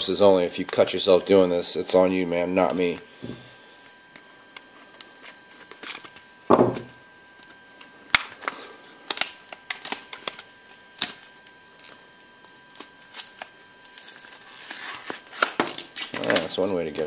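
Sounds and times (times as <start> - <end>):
plastic packaging cracking: 5.0 - 6.2, 6.8 - 12.0, 12.7 - 16.6.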